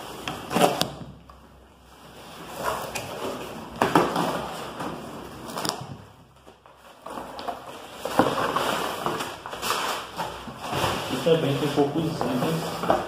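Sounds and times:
cardboard tearing: 0.0s - 1.0s.

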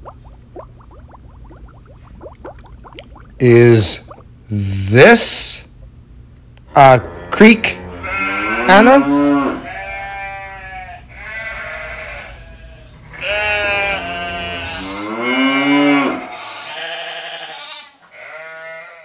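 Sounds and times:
farm animal bleating: 6.8s - 19.0s.

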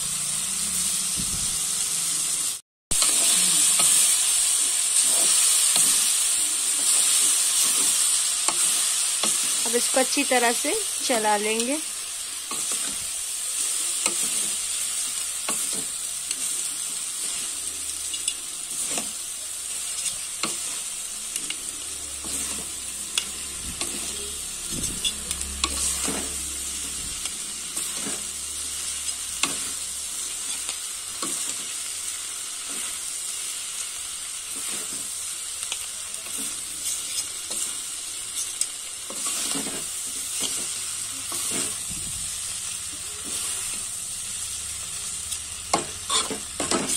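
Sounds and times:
noodles sizzling in a pan: 0.0s - 46.9s
metal spatula scraping a pan: 19.9s - 31.7s, 36.2s - 41.9s, 45.7s - 46.9s.

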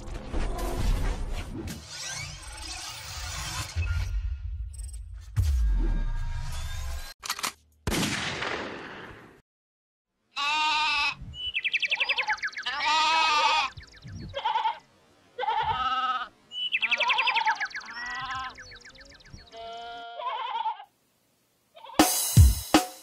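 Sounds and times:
sheep bleating: 10.4s - 11.2s, 12.6s - 14.8s, 15.4s - 18.7s, 19.4s - 20.9s.

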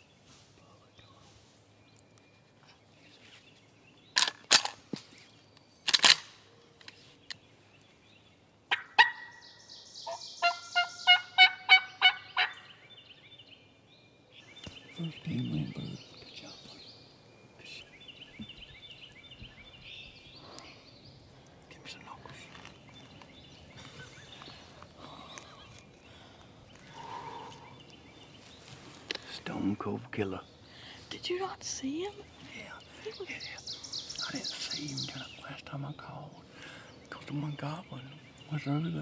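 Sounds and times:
sharp clicks: 5.9s - 7.4s
turkey yelping: 8.7s - 9.4s, 10.1s - 12.7s.

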